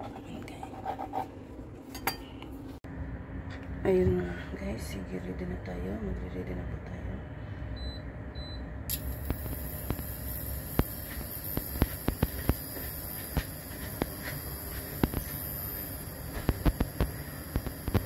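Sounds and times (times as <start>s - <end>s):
steady hum: 0.0s - 18.0s
oil ticking and popping in pan: 16.4s - 18.0s.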